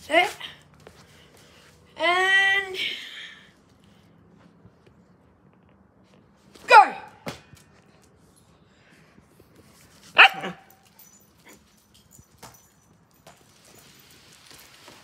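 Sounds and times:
dog barking: 10.2s - 10.8s.

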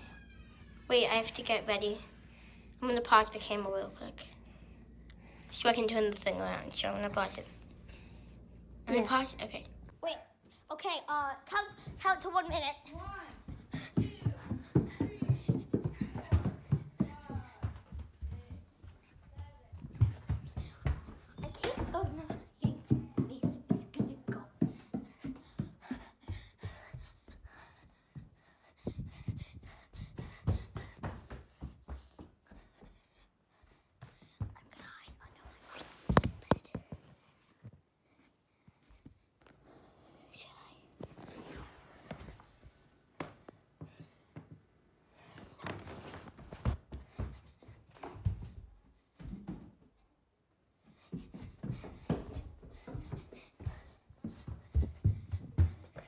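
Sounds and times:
person breathing: 4.3s - 5.5s, 24.7s - 34.6s, 38.0s - 45.8s, 50.8s - 56.0s.

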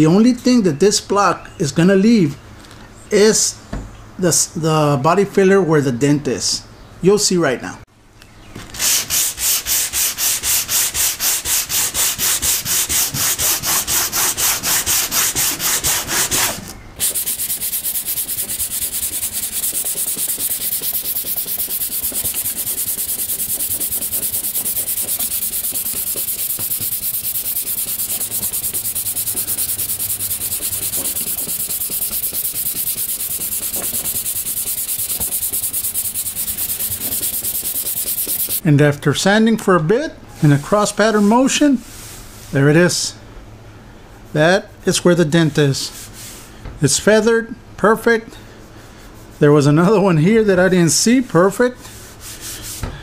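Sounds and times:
sanding block scraping filler: 8.8s - 38.6s.

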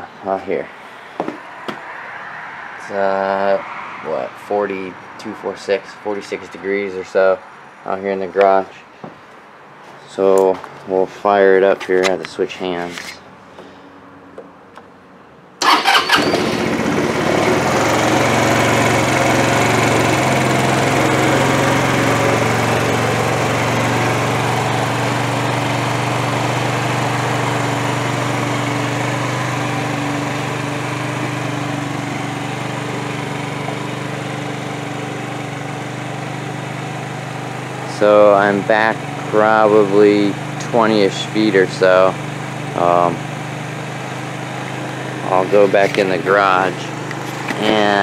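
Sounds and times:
scooter engine starting and idling: 15.6s - 48.0s.

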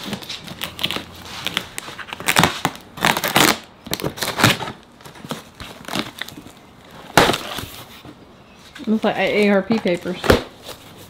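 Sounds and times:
packing tape ripping: 0.0s - 6.4s.

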